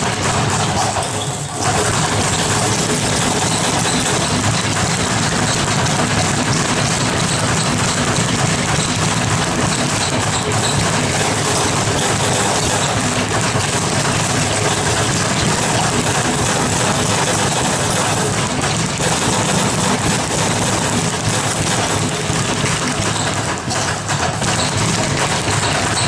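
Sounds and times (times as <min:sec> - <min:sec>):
speed bags rattling: 0:00.0 - 0:26.0.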